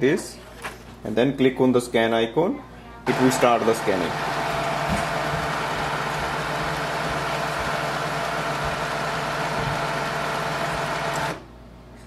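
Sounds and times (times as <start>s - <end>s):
scanner motor hum: 3.1s - 11.4s.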